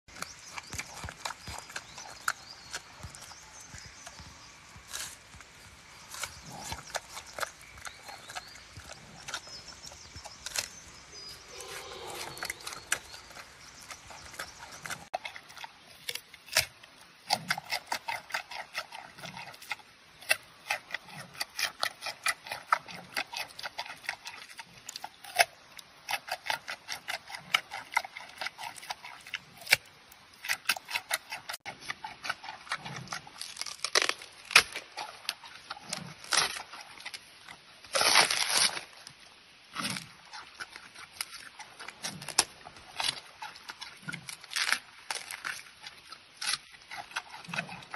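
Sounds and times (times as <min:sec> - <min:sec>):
panda chewing food: 0:04.8 - 0:25.4, 0:26.1 - 0:29.8, 0:39.8 - 0:47.9.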